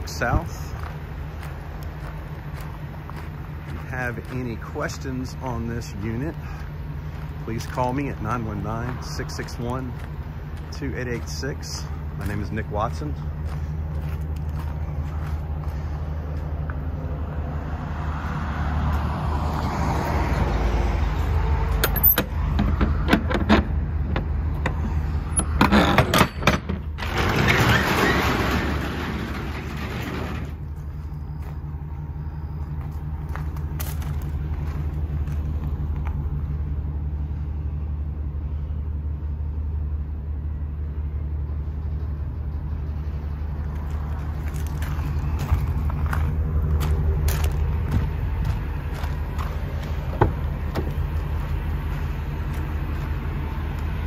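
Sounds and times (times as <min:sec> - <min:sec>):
truck engine idling: 0:00.0 - 0:54.0
roll-up door rattling open: 0:25.5 - 0:30.7.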